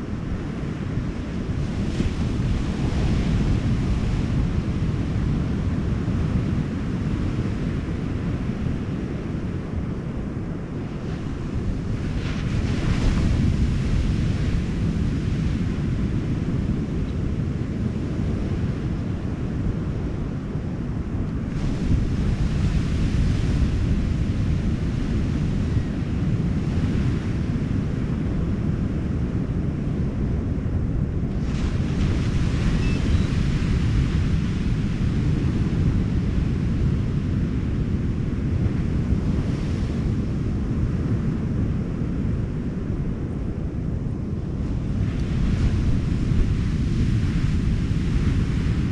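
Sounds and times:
ocean surf: 0.0 - 48.9
wind buffeting microphone: 0.0 - 48.9
ocean surf rushing: 31.3 - 43.4, 44.0 - 48.9
waves breaking: 31.4 - 40.6.

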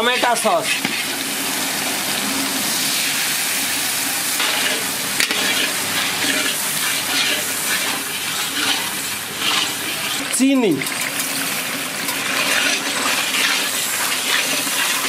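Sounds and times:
metal spatula stirring in wok: 0.0 - 1.3, 4.4 - 15.0
vegetables sizzling in sauce: 0.0 - 15.0.

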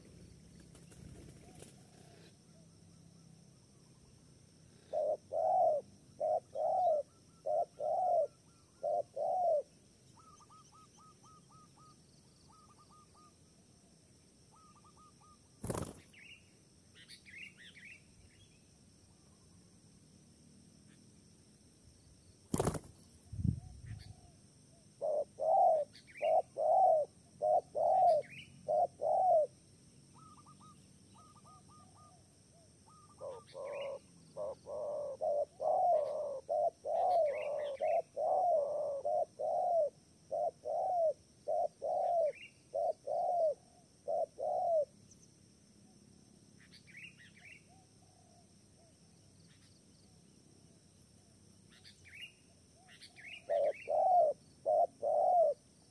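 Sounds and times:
small birds chirping: 0.0 - 13.5, 14.4 - 19.6, 22.4 - 55.9
dove cooing: 4.8 - 11.9, 25.0 - 29.6, 32.9 - 44.9, 52.8 - 55.6.

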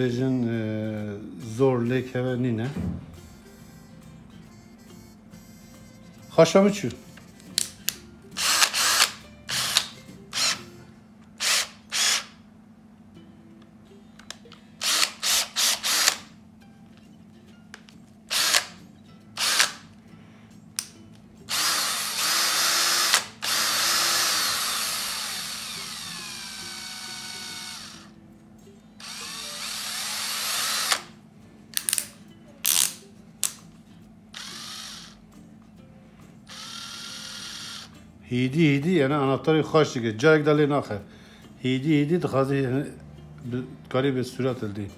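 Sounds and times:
drill chuck ratcheting: 8.4 - 10.6, 11.4 - 12.4, 14.8 - 16.3, 18.3 - 18.8, 19.4 - 19.8, 21.5 - 28.1, 29.0 - 31.1, 34.4 - 35.2, 36.5 - 37.9
drill motor running: 8.4 - 10.6, 11.4 - 12.4, 14.8 - 16.3, 18.3 - 18.8, 19.4 - 19.8, 21.5 - 28.1, 29.0 - 31.1, 34.4 - 35.2, 36.5 - 37.9.

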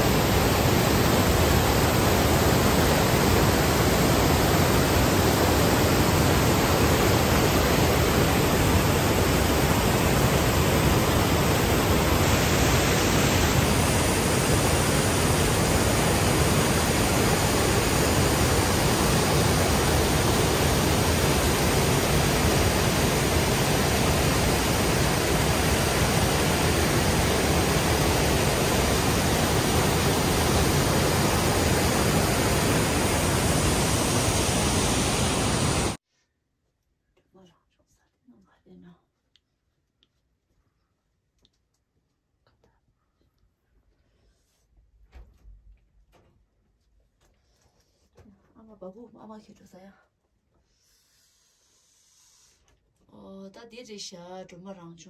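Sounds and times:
stream rushing over boulders: 0.0 - 36.0.

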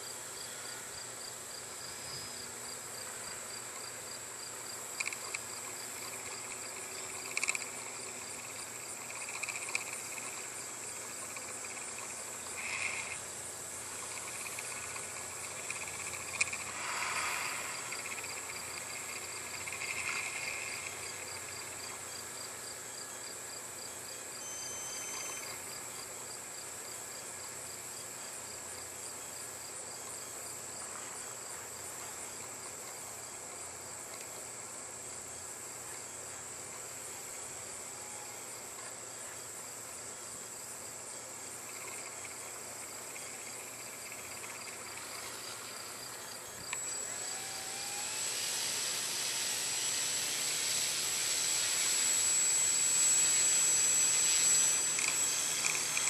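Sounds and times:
crickets chirping: 0.0 - 56.0
high insect drone: 0.0 - 56.0
sharp click: 5.0 - 7.8, 14.1 - 16.7, 54.1 - 56.0.

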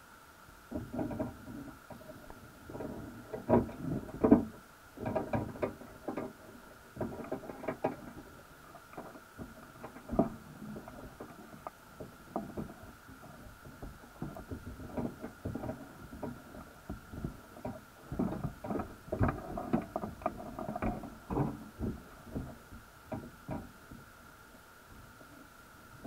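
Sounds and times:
faint high hum: 0.0 - 26.0
muffled underwater knocks: 9.0 - 24.1.

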